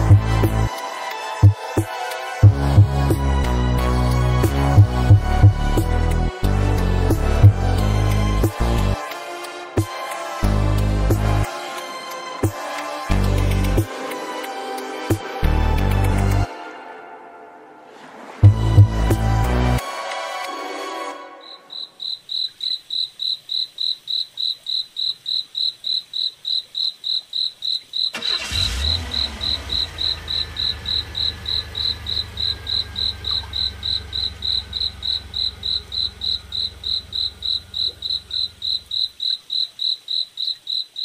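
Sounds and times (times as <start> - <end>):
cricket chirping: 21.3 - 41.0.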